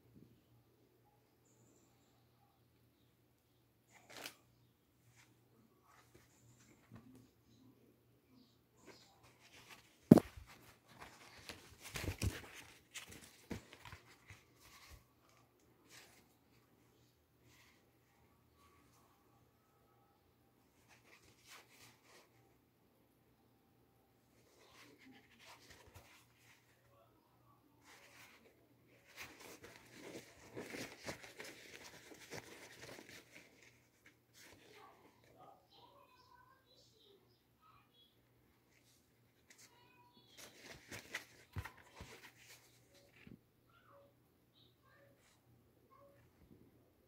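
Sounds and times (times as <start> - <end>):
cap handling rustle: 8.9 - 15.0, 27.8 - 34.7, 40.4 - 43.3.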